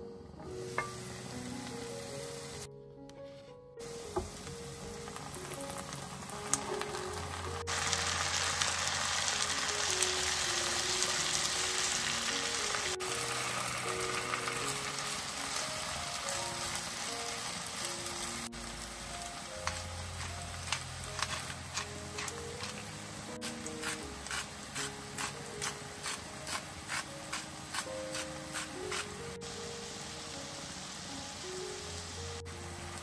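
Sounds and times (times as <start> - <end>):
vegetables sizzling in oil: 0.5 - 2.7, 3.8 - 33.0
spatula stirring in pan: 19.7 - 29.2.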